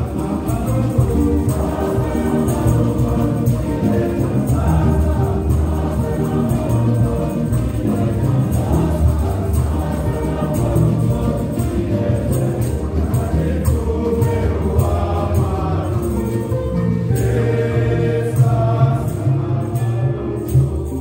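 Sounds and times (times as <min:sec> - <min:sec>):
hand drums beating: 0:00.0 - 0:21.0
men's choir singing a hymn: 0:00.0 - 0:21.0.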